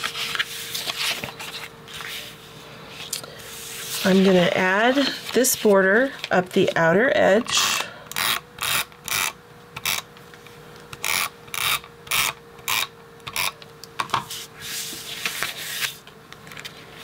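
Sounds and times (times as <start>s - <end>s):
faint steady hum: 0.0s - 17.0s
tape dispenser rasping on paper: 7.5s - 10.1s, 11.0s - 13.6s.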